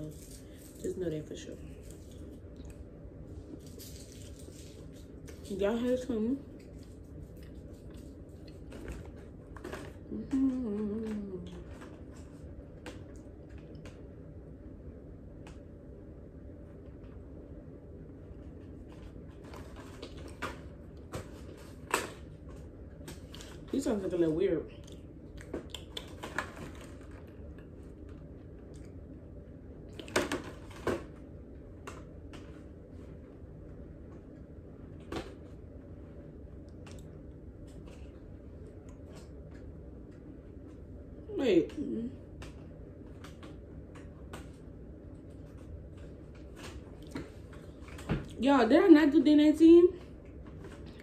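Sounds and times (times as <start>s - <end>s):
cardboard box and wrappers rustling: 3.4s - 12.4s
woman humming: 10.1s - 11.7s.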